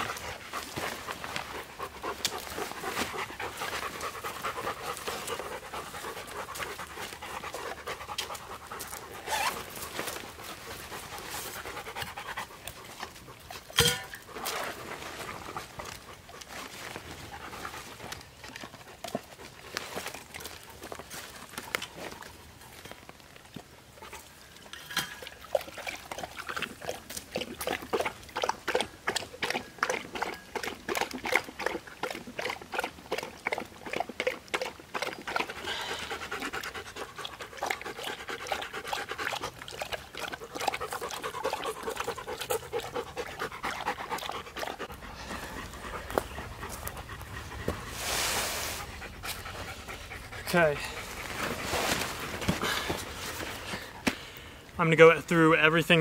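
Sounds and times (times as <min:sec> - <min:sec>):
dog panting: 0:00.0 - 0:13.6, 0:14.8 - 0:19.8, 0:34.6 - 0:48.0, 0:48.7 - 0:54.0
dogs lapping water: 0:00.0 - 0:48.1, 0:48.8 - 0:54.8
short rustle: 0:50.8 - 0:53.8.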